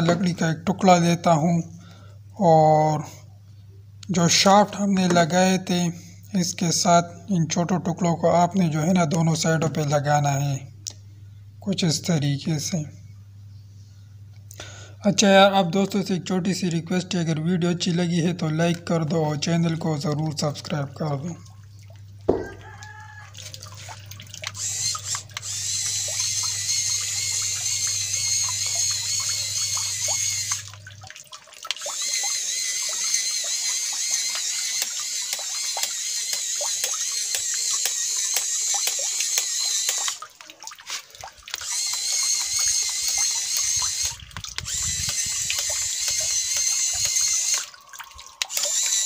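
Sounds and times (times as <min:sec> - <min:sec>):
oars splashing in water: 0:21.5 - 0:26.3, 0:38.4 - 0:49.0
small gear motors whining: 0:24.5 - 0:30.8, 0:31.9 - 0:40.2, 0:41.6 - 0:49.0.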